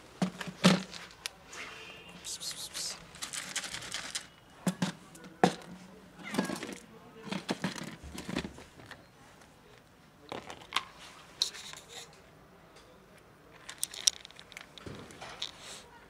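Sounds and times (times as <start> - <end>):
cat crunching dry kibble: 2.5 - 4.3, 10.3 - 10.9, 13.5 - 15.8
dry kibble rattling into tray: 2.5 - 4.3, 13.5 - 15.8
plastic container handled: 6.4 - 9.0, 10.3 - 12.1, 13.6 - 15.7.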